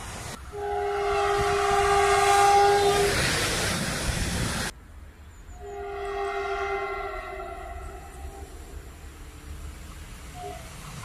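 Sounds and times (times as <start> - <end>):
train rushing past: 0.0 - 11.0
fainter train horn: 0.4 - 3.2, 5.5 - 9.7, 10.3 - 10.7
train horn blast: 0.5 - 3.2, 5.6 - 9.4.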